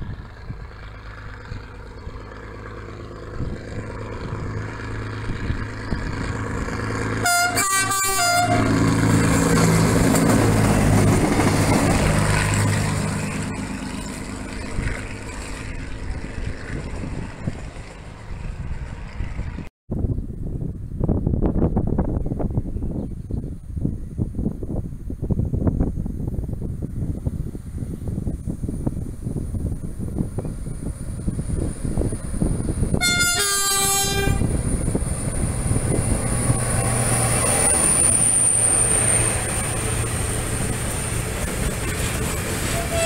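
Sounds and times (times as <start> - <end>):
diesel railcar passing: 0.0 - 19.7, 20.5 - 43.0
train horn short toots: 7.2 - 8.9, 33.0 - 34.6, 42.6 - 43.0.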